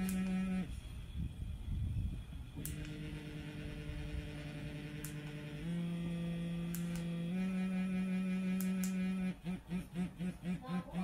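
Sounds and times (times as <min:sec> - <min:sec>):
vibrator motor buzzing: 0:00.0 - 0:11.0
short clicks: 0:02.6 - 0:03.0, 0:05.0 - 0:05.4, 0:06.6 - 0:07.2, 0:08.5 - 0:09.0.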